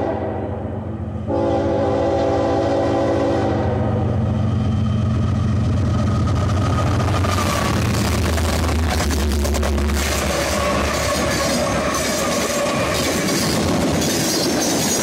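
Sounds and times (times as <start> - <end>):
train air horn blasts: 0.0 - 4.3
diesel locomotive rumble: 0.0 - 15.0.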